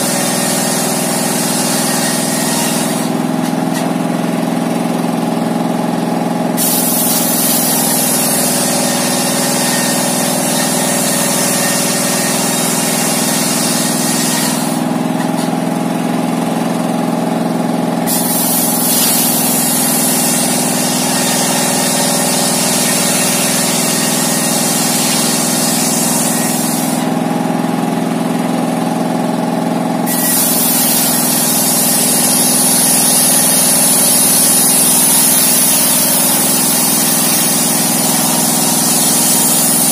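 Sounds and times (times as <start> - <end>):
circular saw cutting wood: 0.0 - 39.9
diesel engine running: 0.0 - 39.9.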